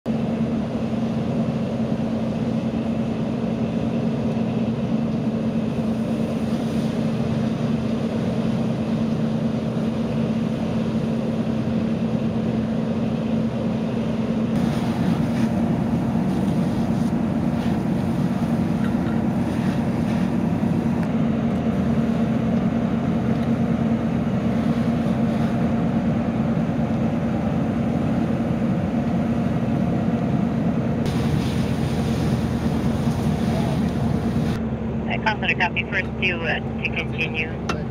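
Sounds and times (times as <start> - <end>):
diesel engine drone: 0.0 - 37.9.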